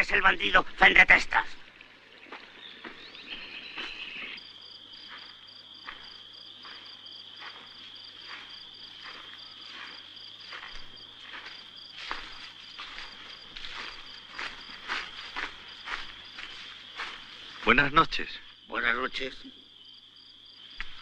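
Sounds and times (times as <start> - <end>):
crickets trilling: 0.0 - 21.0
pulsing cricket chirp: 0.0 - 21.0
footsteps in dry leaves: 5.0 - 17.9.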